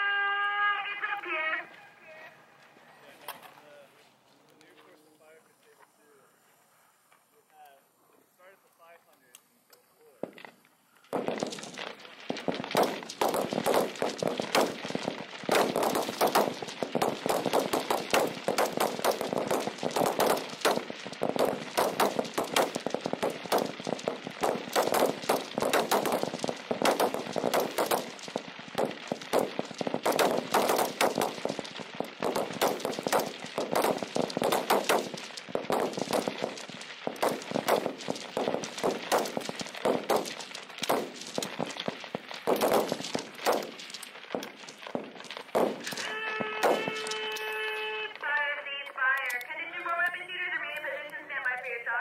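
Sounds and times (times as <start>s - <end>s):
rifles firing: 11.1s - 49.4s.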